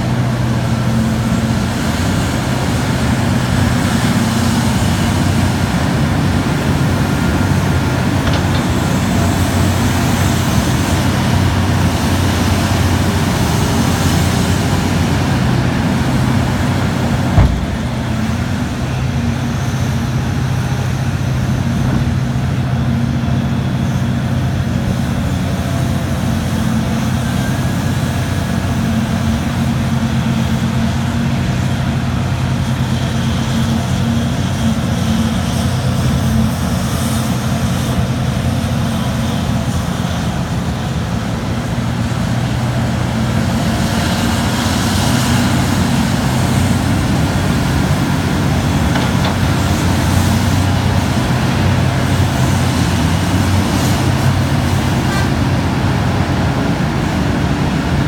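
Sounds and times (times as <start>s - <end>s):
heavy diesel drone: 0.0s - 58.0s
rock dumping into truck bed: 17.3s - 18.2s.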